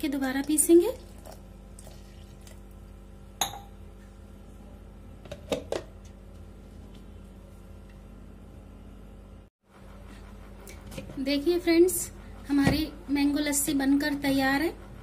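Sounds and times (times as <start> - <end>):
water pouring into jar: 1.0 - 2.7.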